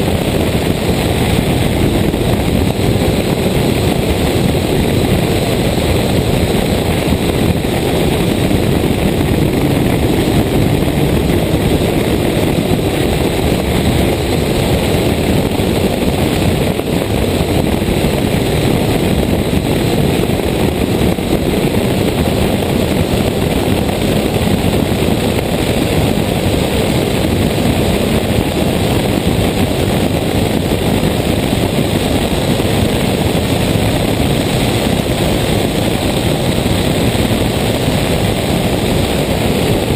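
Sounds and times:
rally car engine running hard: 0:00.0 - 0:39.9
wind on microphone: 0:00.0 - 0:39.9.

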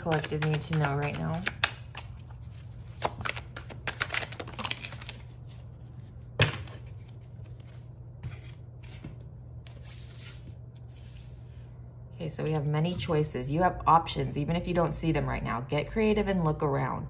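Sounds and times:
cards shuffled by hand: 0:00.0 - 0:06.1
cards knocked on wooden table: 0:06.4 - 0:06.9
cards sliding: 0:06.8 - 0:11.6.

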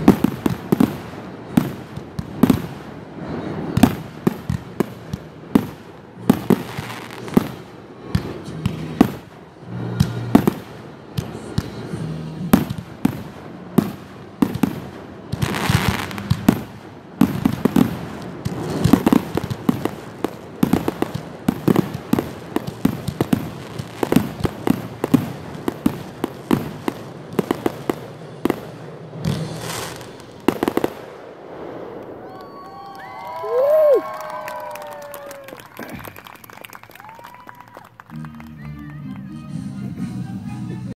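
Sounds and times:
firework hissing crackle: 0:00.0 - 0:37.6
firework shells bursting: 0:12.6 - 0:34.0.

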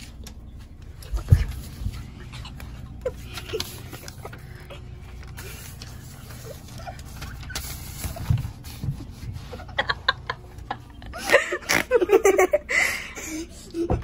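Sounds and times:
stifled giggling: 0:02.0 - 0:05.0, 0:09.4 - 0:14.0.

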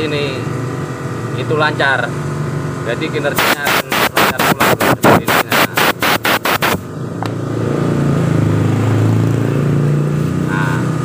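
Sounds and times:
air compressor motor hum: 0:03.4 - 0:06.9
compressed air blow gun blasts: 0:03.4 - 0:06.9.

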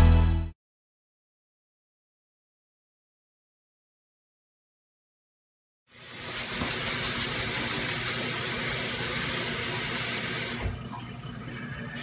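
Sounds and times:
kitchen faucet running into sink: 0:05.9 - 0:12.0.

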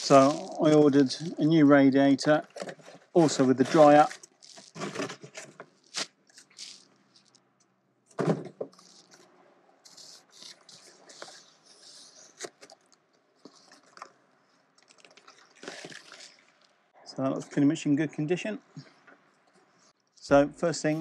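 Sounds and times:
cardboard rustling and scraping: 0:00.0 - 0:01.3, 0:02.5 - 0:07.4, 0:08.2 - 0:09.3.

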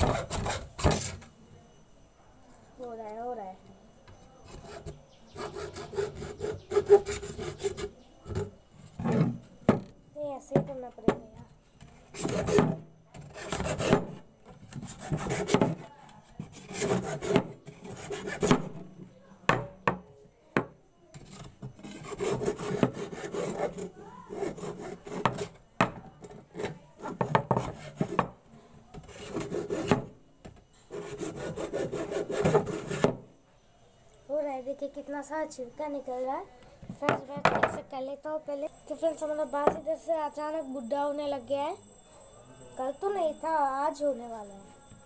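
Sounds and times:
hacksaw blade scraping bamboo: 0:04.4 - 0:08.4, 0:12.1 - 0:15.8, 0:16.5 - 0:18.7, 0:21.2 - 0:25.6, 0:29.0 - 0:30.1, 0:30.9 - 0:33.2.

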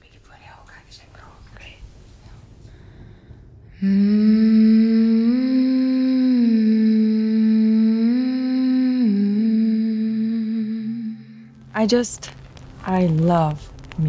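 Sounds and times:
woman humming: 0:03.8 - 0:11.7.

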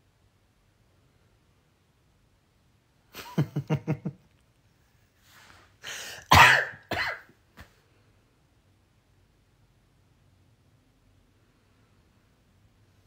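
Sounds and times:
man coughing: 0:05.9 - 0:07.3
man clearing his throat: 0:06.2 - 0:07.3.

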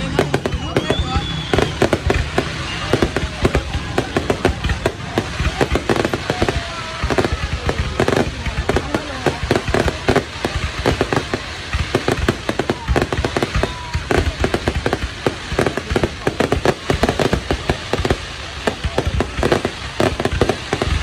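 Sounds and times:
fireworks launching and bursting: 0:00.0 - 0:21.0.

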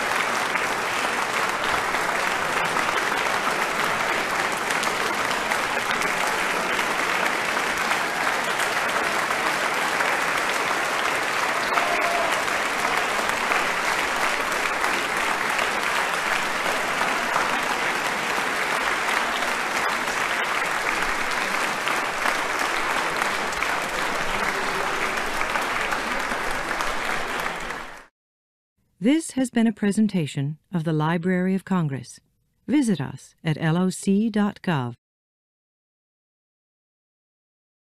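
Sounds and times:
audience applauding: 0:00.0 - 0:28.1.

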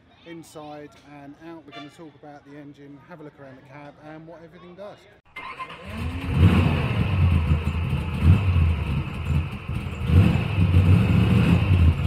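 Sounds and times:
vehicle engine revving: 0:05.4 - 0:12.0.

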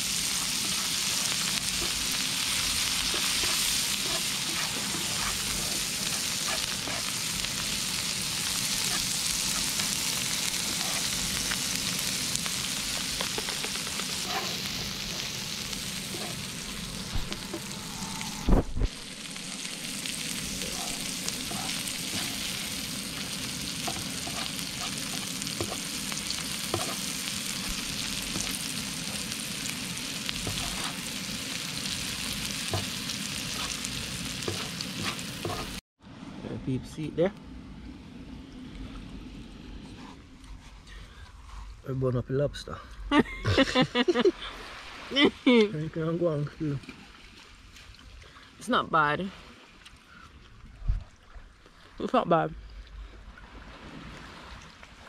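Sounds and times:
food sizzling on a griddle: 0:00.0 - 0:35.8
wooden spatula clicking and scraping: 0:26.7 - 0:27.0.

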